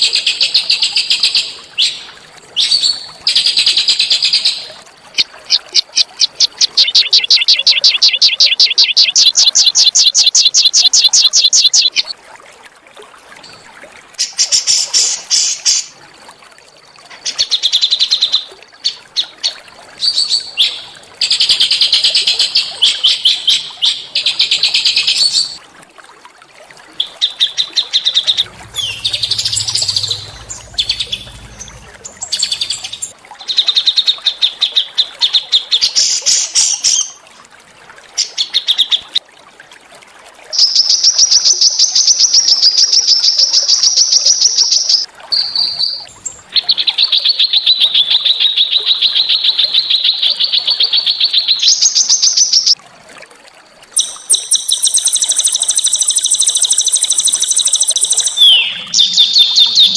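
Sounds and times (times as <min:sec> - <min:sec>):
songbird trilling: 0:28.1 - 0:33.1, 0:54.0 - 0:59.9.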